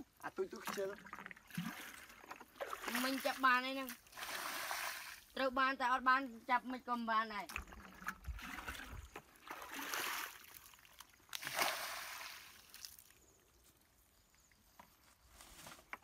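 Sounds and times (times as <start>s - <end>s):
muddy water sloshing and pouring: 0.3s - 5.4s, 7.4s - 13.2s
water splashing: 0.3s - 5.4s, 7.5s - 13.1s.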